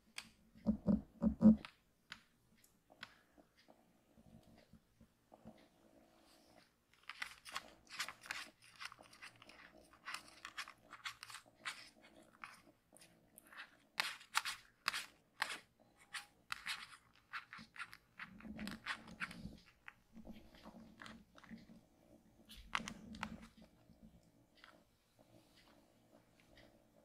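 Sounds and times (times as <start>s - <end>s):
claws scratching on fabric: 7.0s - 21.6s.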